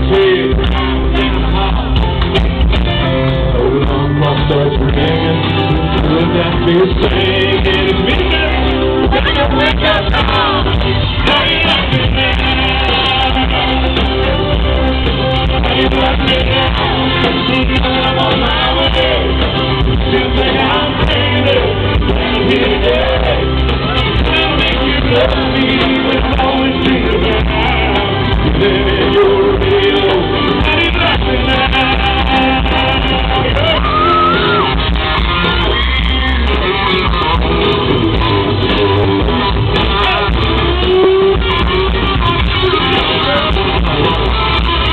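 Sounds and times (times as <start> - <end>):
live country band playing: 0.0 - 44.9
man singing: 0.0 - 44.9
crowd shouting: 7.1 - 37.8.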